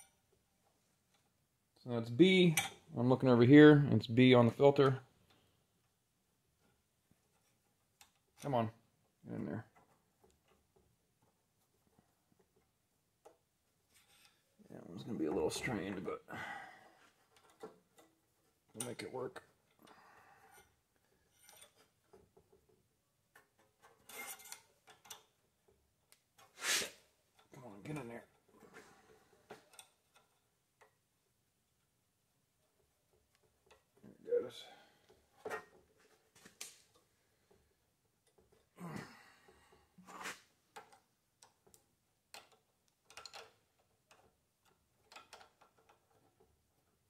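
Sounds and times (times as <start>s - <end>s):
light rubbing: 26.4s - 27.1s.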